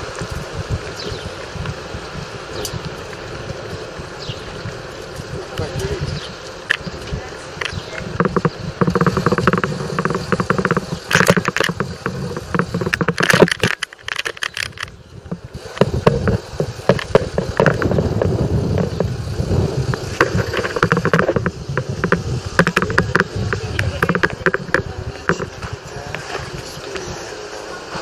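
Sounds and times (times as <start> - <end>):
camera rattling and clicking: 6.5 - 26.2
low rumble: 14.7 - 27.3.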